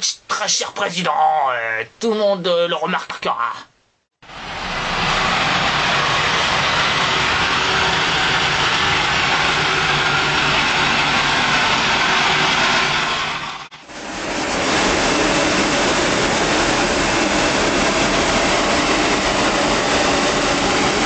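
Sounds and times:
street cleaner engine running: 4.2s - 21.0s
high-pressure water jet hissing: 4.3s - 21.0s.

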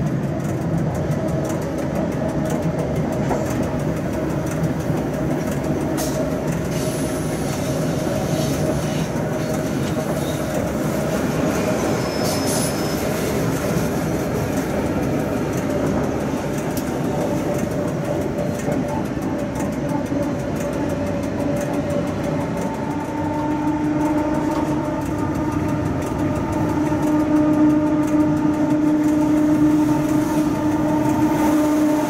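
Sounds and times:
clicks over rail joints: 0.0s - 32.0s
locomotive hum: 0.0s - 32.0s
train rumbling on rails: 0.0s - 32.0s
wheel squeal: 11.4s - 13.9s.

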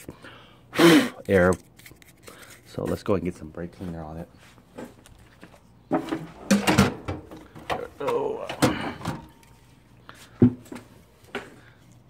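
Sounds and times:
items clattering in a drawer: 5.9s - 9.4s.

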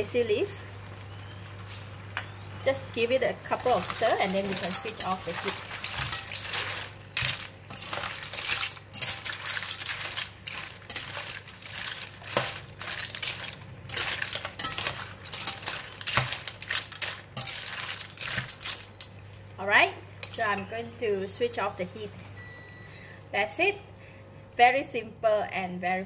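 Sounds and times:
metal spatula scraping wok: 3.4s - 19.1s
clam shells clattering: 3.6s - 19.2s.

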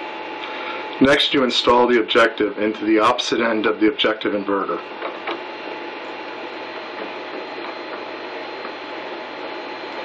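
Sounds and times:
faint hum: 0.0s - 10.0s.

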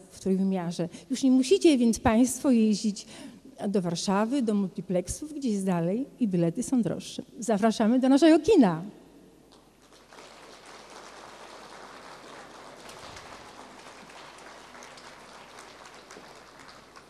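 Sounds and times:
faint audience applause: 9.5s - 17.0s.

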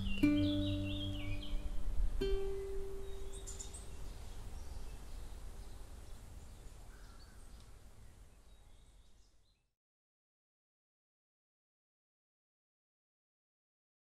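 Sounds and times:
plucked guitar note: 0.0s - 3.4s
faint bird chirps: 0.0s - 9.7s.

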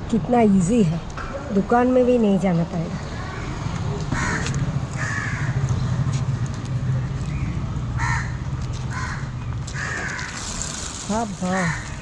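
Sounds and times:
crows cawing: 4.1s - 5.7s, 8.0s - 10.6s, 11.6s - 12.0s.

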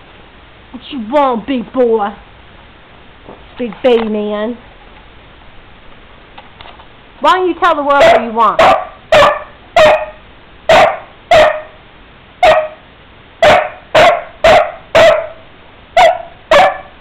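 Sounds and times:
dog barking: 7.9s - 11.8s, 12.4s - 12.8s, 13.4s - 17.0s.

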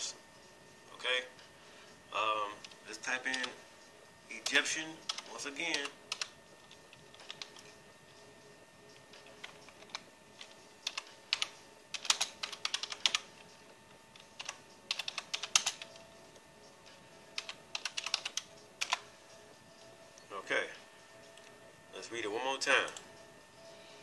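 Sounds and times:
computer keyboard typing: 2.6s - 3.6s, 4.4s - 7.8s, 8.9s - 16.1s, 17.3s - 19.1s.

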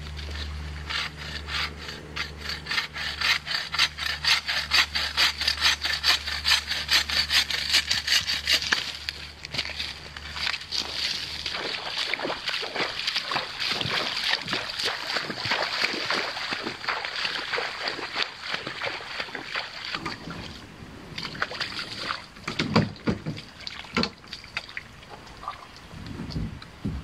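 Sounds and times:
paddle splashes and drips: 10.4s - 25.9s
hollow knocks on kayak: 22.5s - 24.2s.

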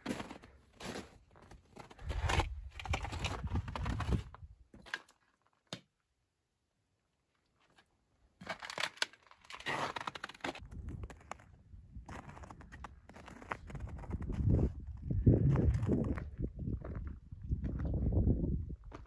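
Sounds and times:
footsteps crunching through snow: 0.0s - 2.5s, 12.1s - 14.6s.

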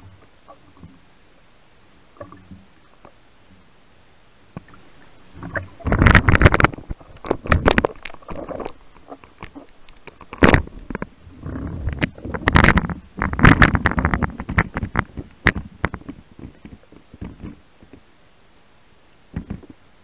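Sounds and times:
muffled underwater rushing: 0.0s - 18.1s.

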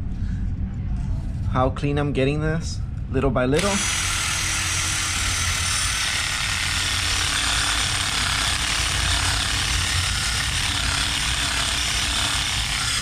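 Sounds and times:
wire brush drill grinding metal: 3.6s - 13.0s.

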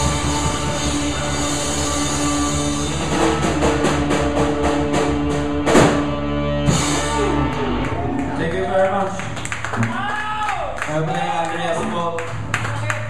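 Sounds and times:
rock band playing live: 0.0s - 9.9s.

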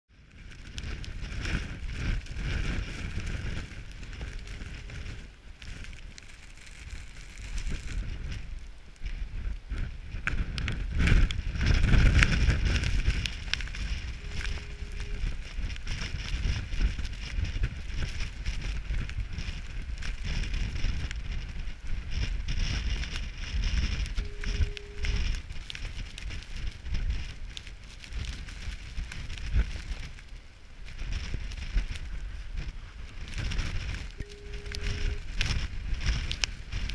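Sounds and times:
storm wind gusting on microphone: 0.1s - 36.9s
faint foghorn blast: 13.9s - 15.5s, 24.2s - 25.4s, 34.2s - 35.4s.

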